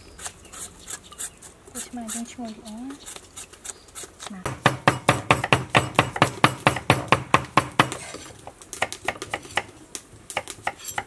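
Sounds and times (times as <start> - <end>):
knife chopping on wooden board: 4.5 - 8.2.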